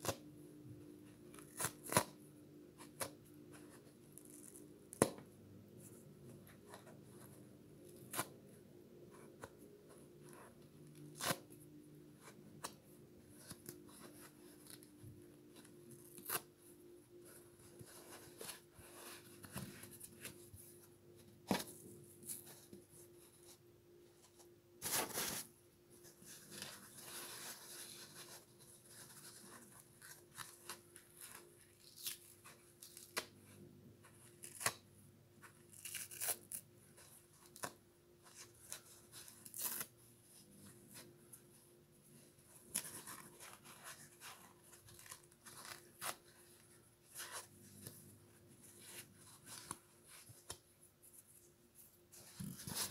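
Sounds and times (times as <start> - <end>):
foam sponge tearing: 35.7 - 36.6.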